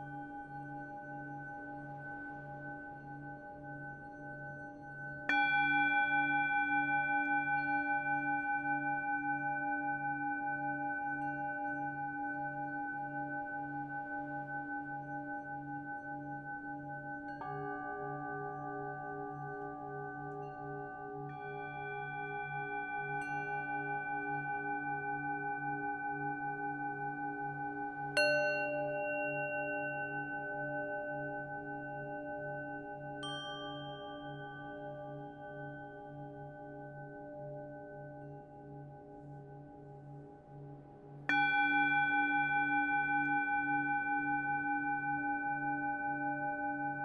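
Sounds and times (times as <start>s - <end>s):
singing bowls ringing: 15.0s - 39.2s, 41.3s - 47.0s
singing bowl ringing: 28.0s - 37.9s.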